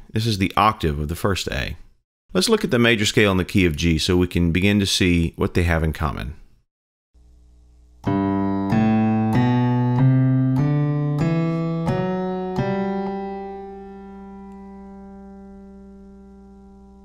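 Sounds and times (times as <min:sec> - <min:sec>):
piano playing a rising scale: 0:08.0 - 0:17.0.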